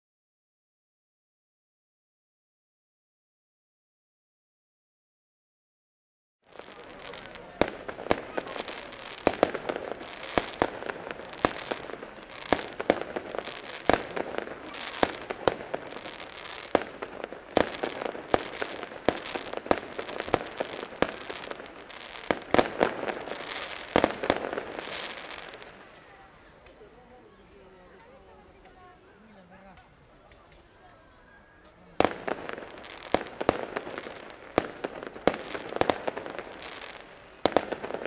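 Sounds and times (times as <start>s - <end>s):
fireworks bangs: 6.5s - 26.9s, 31.6s - 38.0s
fireworks crackling and hissing: 6.5s - 38.0s.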